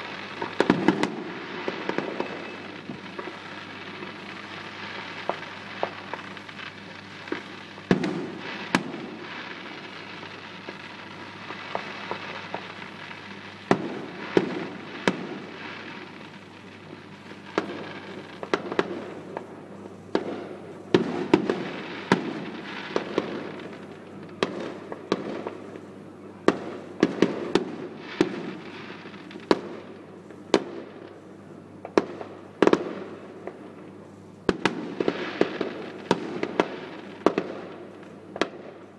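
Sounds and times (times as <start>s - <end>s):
distant fireworks bangs: 0.0s - 25.8s, 34.5s - 38.9s
continuous background hiss: 0.0s - 38.9s.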